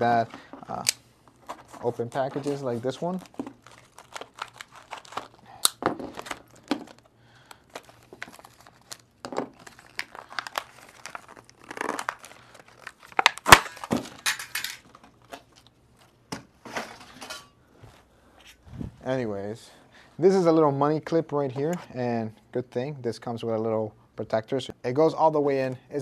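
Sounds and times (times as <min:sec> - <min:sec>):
cardboard box tearing and crinkling: 0:09.6 - 0:13.9.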